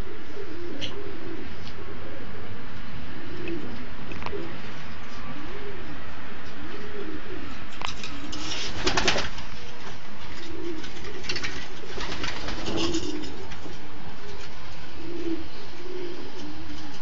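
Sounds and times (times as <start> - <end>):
pigeons cooing: 0.0 - 17.0
wings flapping: 7.9 - 14.5.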